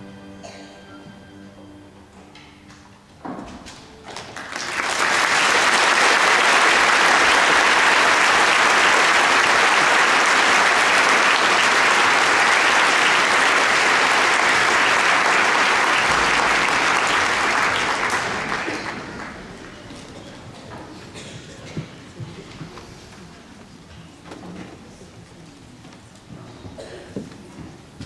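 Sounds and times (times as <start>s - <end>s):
audience applauding: 4.0s - 20.1s.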